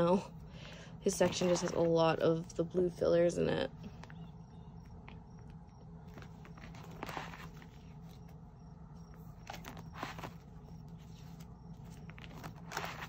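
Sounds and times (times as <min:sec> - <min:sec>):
low steady hum: 0:00.0 - 0:13.0
plastic sleeves crinkling: 0:06.0 - 0:08.4, 0:09.1 - 0:13.0.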